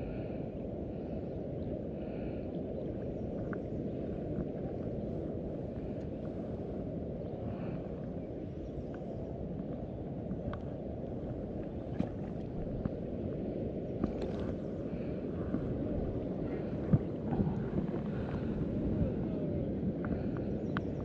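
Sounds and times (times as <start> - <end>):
wind on microphone: 0.0 - 21.0
faint clicks: 10.4 - 10.7.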